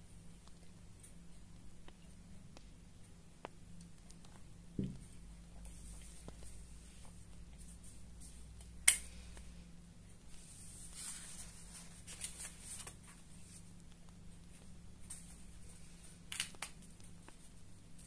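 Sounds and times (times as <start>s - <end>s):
paper pages rustling: 10.4s - 13.6s.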